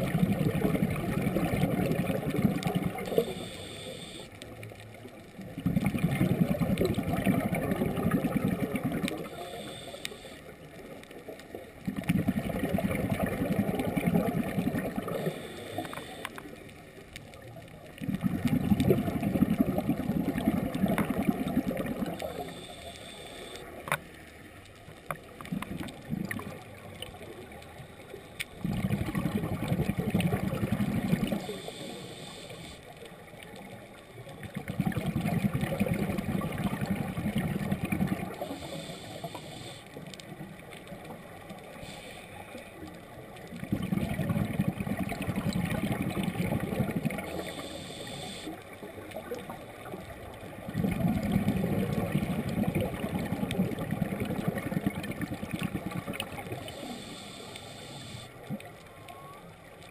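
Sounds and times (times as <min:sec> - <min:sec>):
exhaled bubbles underwater: 0:00.0 - 0:04.2, 0:05.0 - 0:23.9, 0:24.8 - 0:59.9
regulator inhalation hiss: 0:02.9 - 0:04.4, 0:09.1 - 0:10.6, 0:15.0 - 0:16.6, 0:22.2 - 0:23.8, 0:31.3 - 0:33.0, 0:38.3 - 0:40.0, 0:41.7 - 0:42.9, 0:47.2 - 0:48.8, 0:56.6 - 0:58.4.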